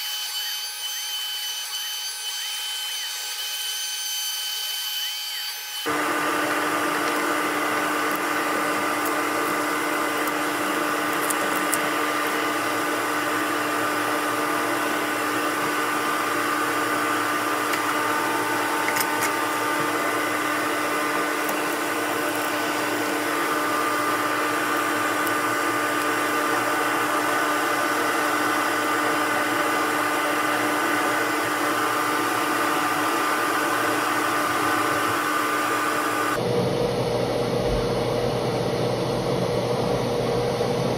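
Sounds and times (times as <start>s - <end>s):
electric motor humming and whining: 0.0s - 40.9s.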